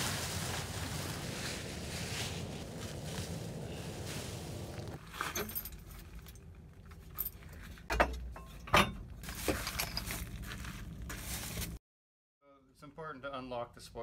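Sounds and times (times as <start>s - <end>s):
wind-like rushing noise: 0.0s - 5.0s
metallic clinks and jangles: 5.3s - 7.8s, 8.4s - 10.4s.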